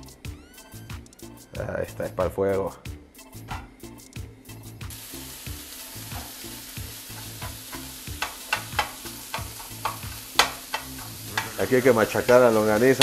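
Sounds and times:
sausage sizzling in frying pan: 4.9 - 13.0
spatula scraping and tapping pan: 7.1 - 13.0.

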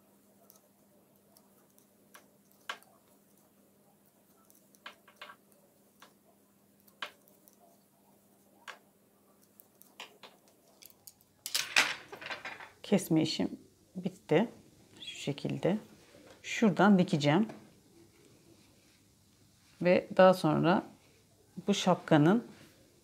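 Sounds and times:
knitting needles clicking: 0.4 - 3.6, 4.2 - 6.2, 6.8 - 7.8, 9.4 - 11.6.

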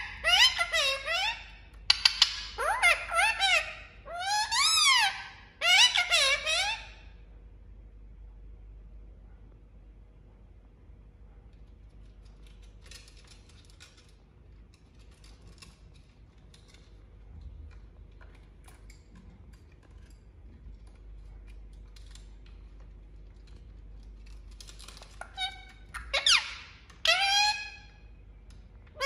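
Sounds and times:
parakeet squawking: 0.0 - 7.0, 25.2 - 28.0
faint clicks and rustles: 11.4 - 26.0.

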